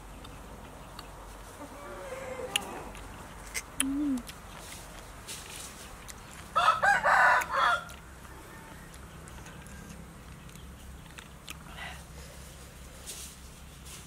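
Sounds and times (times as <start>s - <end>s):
rooster crowing: 1.7s - 2.9s, 6.6s - 9.0s.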